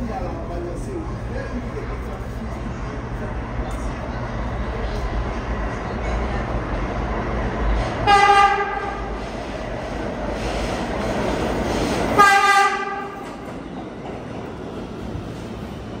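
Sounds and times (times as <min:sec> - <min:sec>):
train running rumble: 0:00.0 - 0:16.0
subway train horn blasts: 0:07.9 - 0:09.2, 0:12.1 - 0:13.3.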